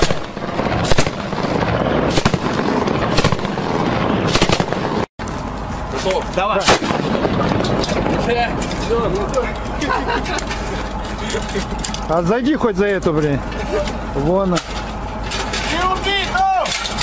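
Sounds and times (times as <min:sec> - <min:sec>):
machine gun fire: 0:00.0 - 0:05.1, 0:06.6 - 0:08.6
rifle gunshots: 0:00.0 - 0:05.1, 0:06.6 - 0:08.4
steady noisy background: 0:00.0 - 0:17.0.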